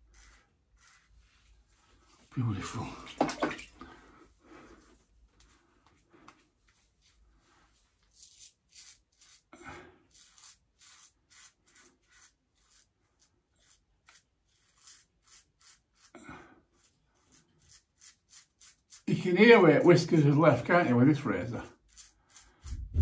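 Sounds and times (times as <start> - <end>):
razor scraping through whiskers: 0.0 - 1.3, 8.1 - 16.1, 16.7 - 23.0.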